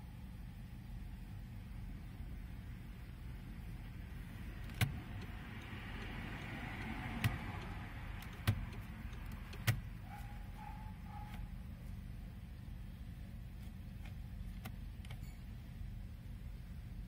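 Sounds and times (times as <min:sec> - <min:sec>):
car engine idling: 0:00.0 - 0:15.2
turn signal clicks: 0:04.6 - 0:10.0.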